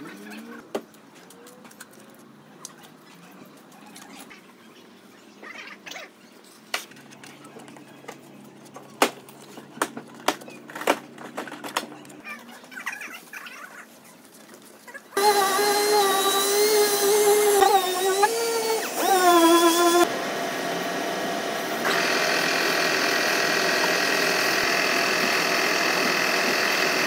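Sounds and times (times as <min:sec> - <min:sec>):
tape clicks and crinkles: 0:00.9 - 0:03.0.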